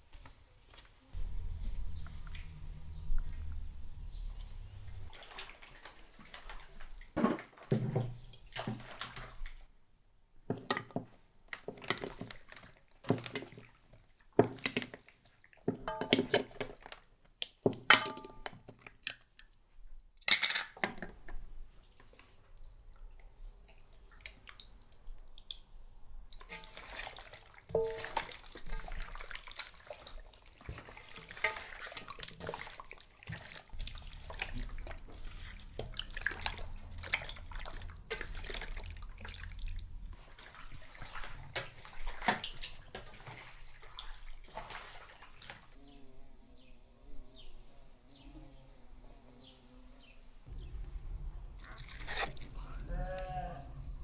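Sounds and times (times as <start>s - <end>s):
water splashing in a bowl: 1.3s - 9.7s, 11.5s - 17.1s, 21.7s - 45.8s, 50.6s - 53.4s
dishes clinking: 15.7s - 16.5s, 27.7s - 29.0s.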